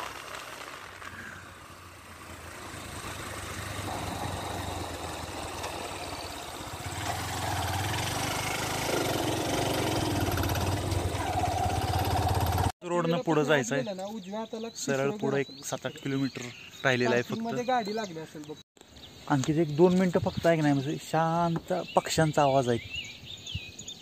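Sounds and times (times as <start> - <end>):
motorbike engine running: 0.0 - 12.7.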